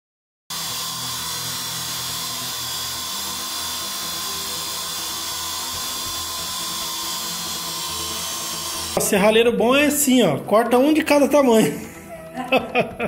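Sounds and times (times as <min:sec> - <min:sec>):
abrasive saw cutting steel: 0:00.5 - 0:09.0.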